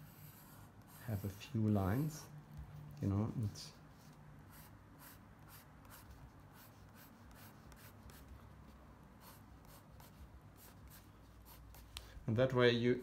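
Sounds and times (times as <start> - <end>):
pencil scratching on paper: 0.0 - 2.3, 3.9 - 8.4, 9.2 - 12.0.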